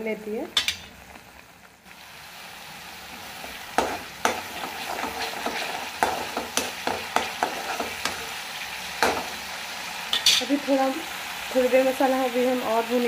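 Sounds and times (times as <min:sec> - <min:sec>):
paste sizzling in oil: 0:00.0 - 0:13.0
spatula knocking pan: 0:03.7 - 0:08.3, 0:09.0 - 0:09.4
metal spatula scraping pan: 0:03.8 - 0:08.4, 0:10.1 - 0:10.6.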